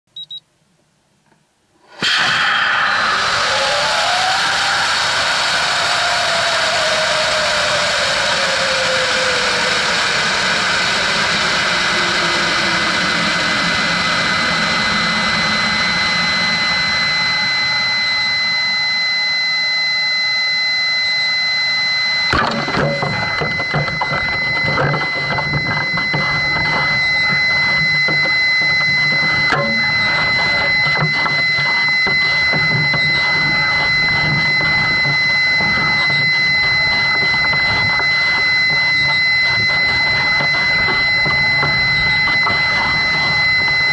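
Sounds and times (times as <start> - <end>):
sharp bang: 1.8 - 5.6
falling whistle: 1.9 - 43.9.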